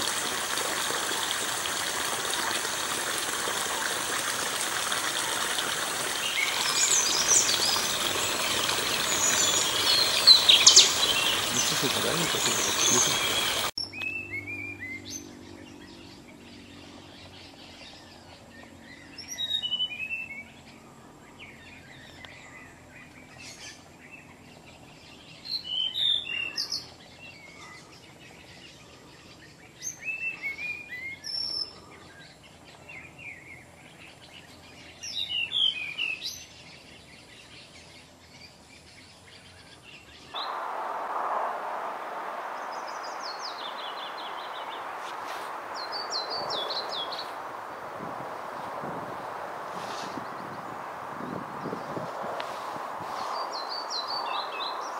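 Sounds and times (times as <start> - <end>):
steady hiss: 0.0 - 13.8, 40.4 - 54.9
bird whistling descending phrases: 40.4 - 47.4
bird singing high stepped notes: 40.4 - 54.9.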